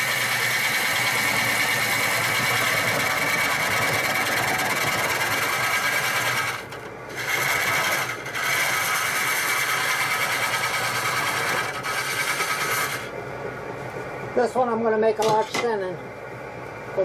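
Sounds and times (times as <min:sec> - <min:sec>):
gouge scraping wood on lathe: 0:00.0 - 0:13.1.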